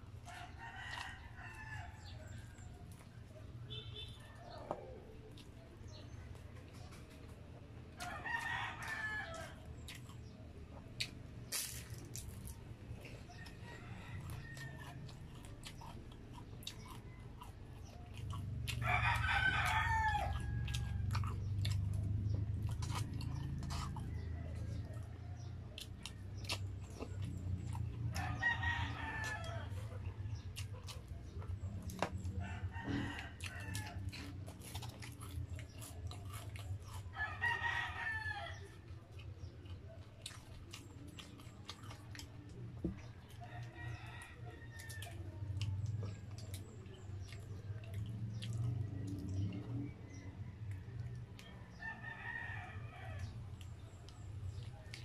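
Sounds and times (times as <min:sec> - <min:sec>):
person chewing: 0:00.1 - 0:37.6, 0:38.5 - 0:43.7, 0:44.8 - 0:49.9, 0:53.2 - 0:55.0
rooster crowing: 0:08.0 - 0:09.6, 0:18.7 - 0:21.2, 0:28.1 - 0:30.0, 0:32.4 - 0:34.1, 0:37.1 - 0:38.7, 0:51.8 - 0:53.4.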